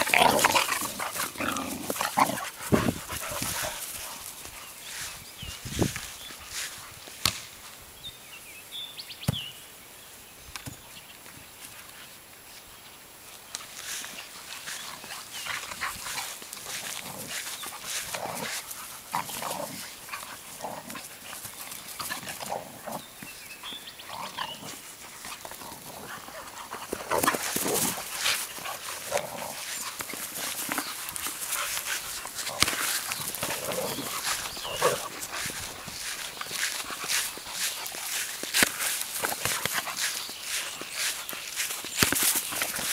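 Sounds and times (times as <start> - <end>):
dogs making play calls: 0.0 - 4.8, 14.4 - 41.2.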